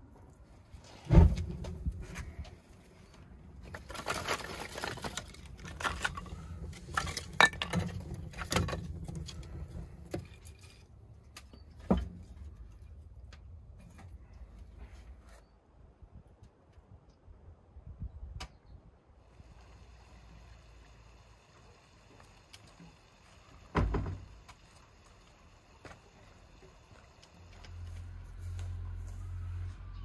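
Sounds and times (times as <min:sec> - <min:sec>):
heavy thump: 0:01.1 - 0:02.0, 0:23.7 - 0:24.3
firewood knocking and clattering: 0:03.6 - 0:14.1, 0:23.5 - 0:24.8.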